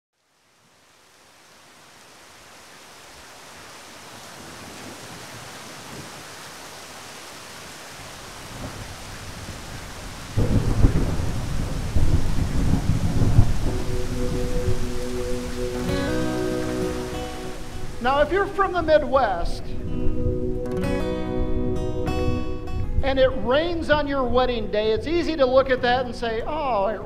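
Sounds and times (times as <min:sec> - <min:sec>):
steady rain: 0:00.2 - 0:20.2
thunder rumbling and clapping: 0:08.5 - 0:20.8.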